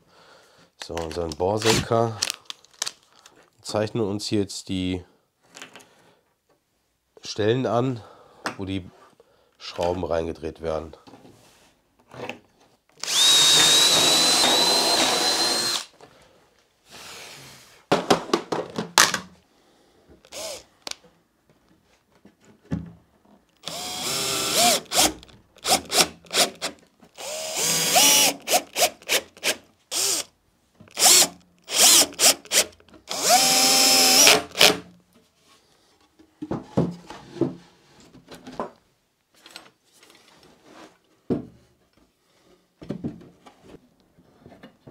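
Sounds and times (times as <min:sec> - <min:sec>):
cordless drill whining: 0:13.0 - 0:15.9, 0:20.3 - 0:21.0, 0:23.6 - 0:30.3, 0:30.9 - 0:34.8.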